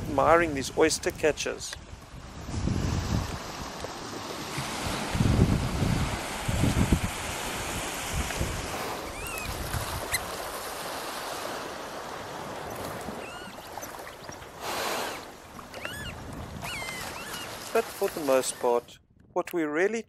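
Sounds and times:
wind: 0:00.0 - 0:20.0
small waves washing on sand: 0:01.8 - 0:18.8
bird chirps: 0:09.1 - 0:09.5, 0:12.6 - 0:14.5.

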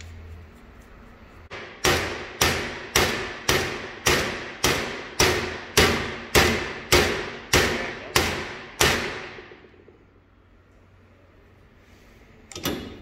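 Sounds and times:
hammer striking metal: 0:01.5 - 0:09.7.

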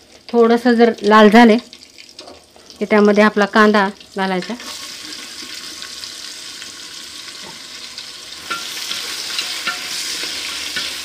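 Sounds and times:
onions sizzling in hot oil: 0:00.0 - 0:11.0
spoon scraping pot: 0:08.4 - 0:11.0.

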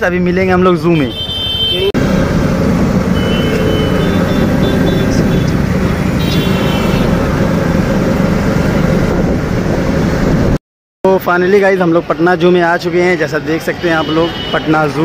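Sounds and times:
wind and road noise: 0:00.0 - 0:15.0
auto-rickshaw engine running: 0:01.7 - 0:10.6
faint horn beeps: 0:03.2 - 0:05.6.

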